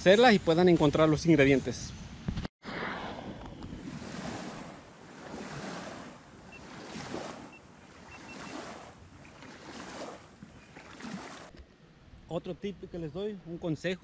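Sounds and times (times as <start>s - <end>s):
wind: 0.0s - 14.0s
small waves lapping on shore: 2.7s - 11.6s.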